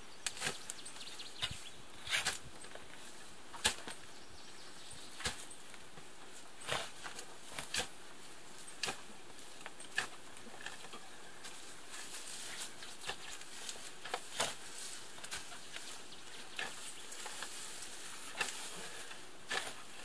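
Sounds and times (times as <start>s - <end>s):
shovel digging into soil: 1.4s - 2.5s, 3.6s - 4.0s, 5.2s - 5.5s, 6.6s - 8.0s, 8.7s - 9.1s, 9.9s - 11.0s, 11.9s - 15.9s, 16.5s - 20.0s.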